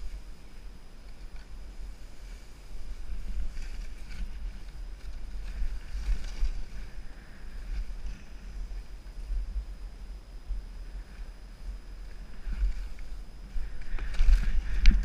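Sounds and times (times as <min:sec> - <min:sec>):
skis scraping over snow: 0:00.0 - 0:09.2
wind buffeting a microphone: 0:00.0 - 0:15.0.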